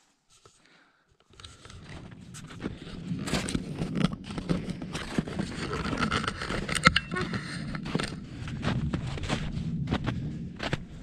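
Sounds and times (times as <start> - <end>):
low rumble: 2.0 - 11.0
footsteps crunching in snow: 7.3 - 11.0.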